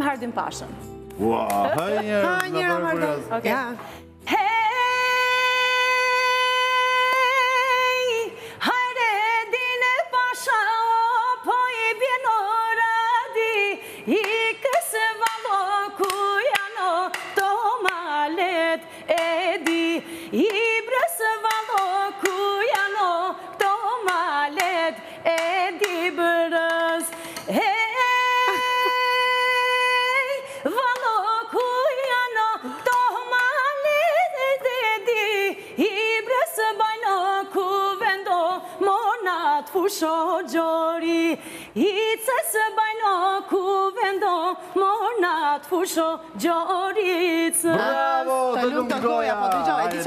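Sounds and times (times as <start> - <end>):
woman singing unaccompanied: 1.6 - 48.3.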